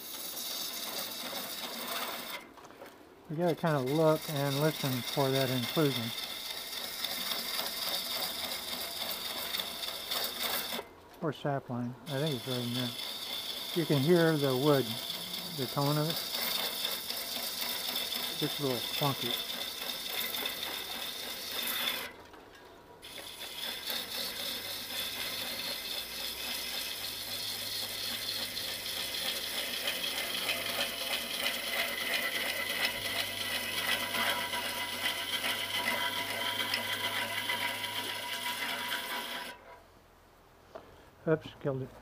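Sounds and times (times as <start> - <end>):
lathe gouge scraping wood: 0.0 - 2.5, 3.3 - 10.9, 12.1 - 22.2, 23.0 - 39.8
lathe motor humming: 3.4 - 10.9, 12.1 - 22.1, 23.0 - 39.6.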